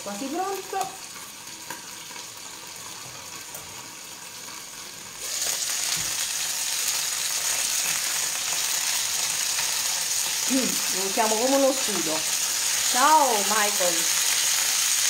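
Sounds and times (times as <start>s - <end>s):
fish sizzling in a frying pan: 0.0s - 15.0s.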